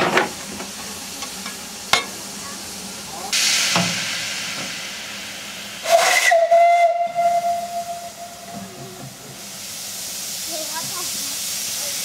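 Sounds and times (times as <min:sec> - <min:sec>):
steam hiss: 0:00.2 - 0:12.0
steam whistle: 0:05.8 - 0:08.7.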